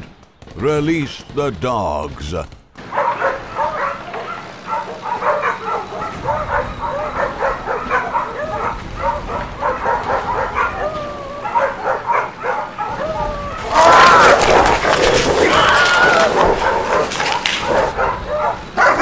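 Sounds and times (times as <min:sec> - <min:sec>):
dogs barking and yelping: 0:02.8 - 0:19.0.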